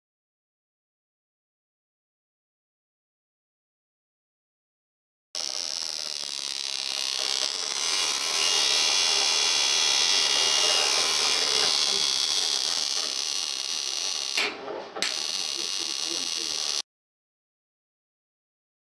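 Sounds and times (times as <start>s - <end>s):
high-pitched buzzing hiss: 15.0s - 16.8s.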